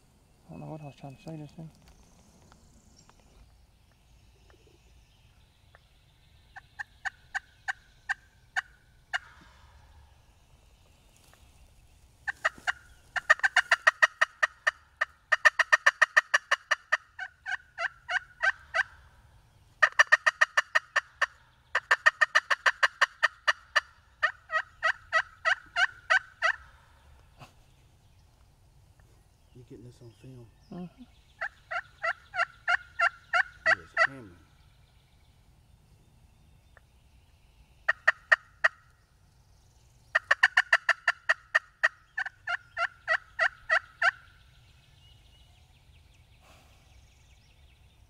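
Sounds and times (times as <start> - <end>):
turkey call rapid notes: 12.2 - 18.9, 19.8 - 26.6, 31.4 - 34.2, 40.1 - 44.2.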